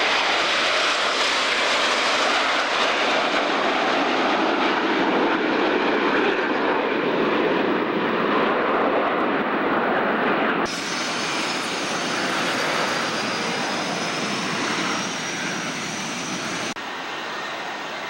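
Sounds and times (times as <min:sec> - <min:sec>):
jet engine rush with turbine whine: 0:00.0 - 0:18.0
jets passing overhead: 0:00.0 - 0:18.0.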